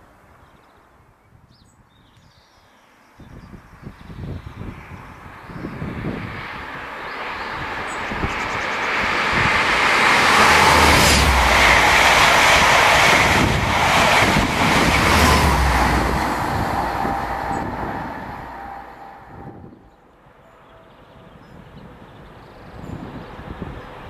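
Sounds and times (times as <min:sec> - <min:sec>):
train engines rumbling: 0:05.2 - 0:24.0
train wheels on rail: 0:06.1 - 0:19.7
wheels clacking over rail joints: 0:07.7 - 0:19.5.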